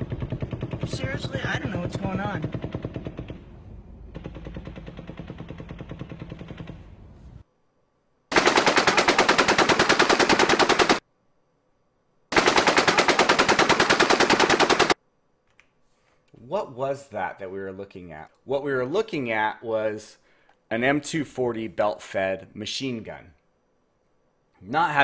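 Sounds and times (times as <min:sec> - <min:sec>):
distant automatic gunfire: 0:08.3 - 0:11.0, 0:12.3 - 0:15.0
machine gun bursts: 0:08.3 - 0:11.0, 0:12.3 - 0:15.0.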